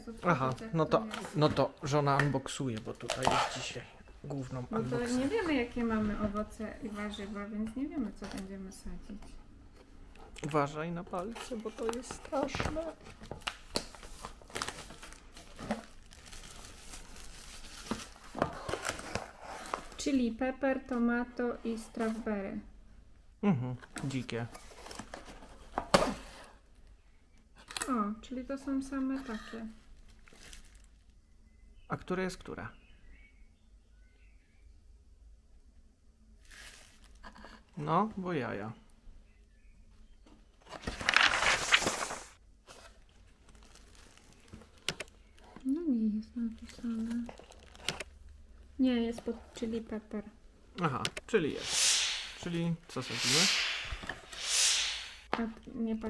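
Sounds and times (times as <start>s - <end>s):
plastic wrapping crinkling: 11.2s - 20.0s, 30.0s - 31.1s, 40.8s - 45.5s, 46.6s - 48.1s.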